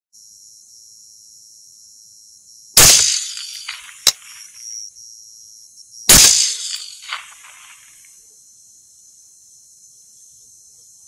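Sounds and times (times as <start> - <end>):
rifle shots with echo: 2.8 - 4.4, 6.1 - 7.8
sharp click: 2.8 - 4.6, 6.1 - 7.6.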